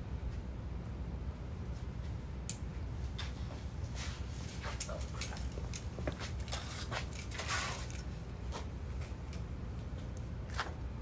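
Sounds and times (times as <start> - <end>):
low outdoor hum: 0.0 - 11.0
footsteps on paved patio: 3.0 - 10.8.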